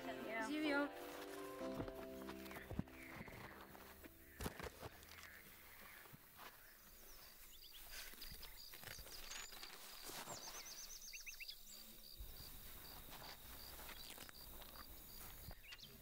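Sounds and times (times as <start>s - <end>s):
faint rustles: 1.0s - 10.7s, 12.4s - 15.7s
high repeating insect chirp: 10.8s - 15.8s.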